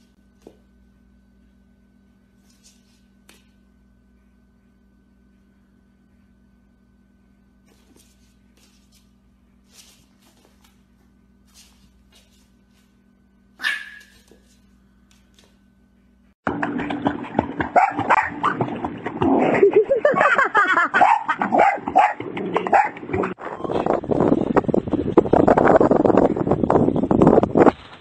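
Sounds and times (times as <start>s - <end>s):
dog barking excitedly: 13.6s - 14.3s, 17.6s - 18.7s, 20.2s - 23.4s
puppy yipping: 13.6s - 14.4s
water splashing: 16.5s - 20.1s.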